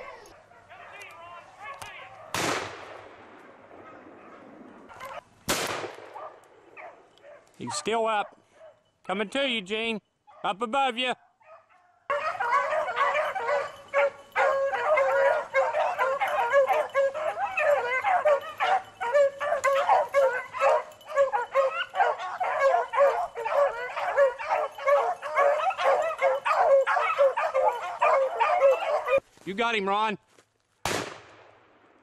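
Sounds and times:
pack of dogs baying: 3.8 - 5.2, 11.2 - 29.2.

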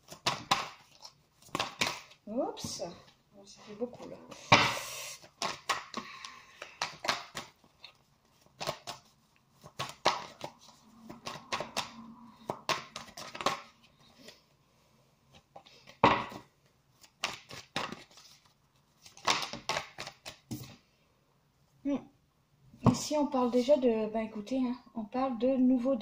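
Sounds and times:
cards being shuffled: 0.0 - 2.2, 5.2 - 14.4, 16.9 - 20.8.

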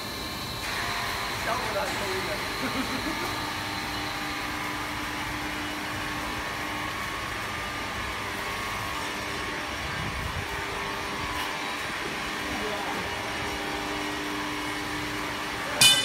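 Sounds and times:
machine mechanical drone: 0.0 - 16.0.

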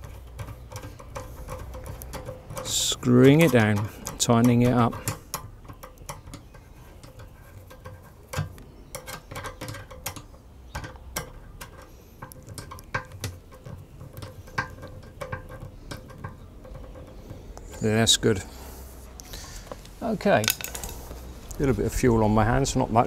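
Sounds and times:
screwdriver clicking on metal clamp: 0.0 - 17.9.

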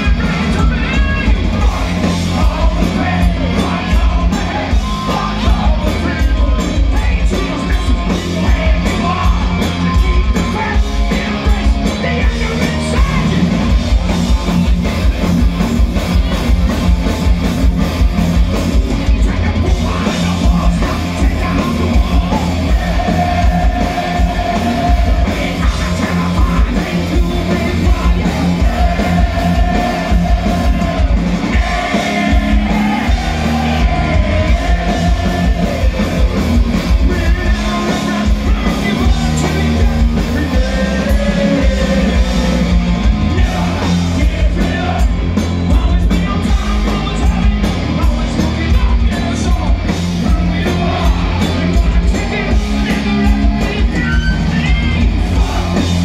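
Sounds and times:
distorted electric guitars: 0.0 - 56.0
drum kit: 0.0 - 56.0
live hard rock band: 0.0 - 56.0
person singing: 19.1 - 45.1.

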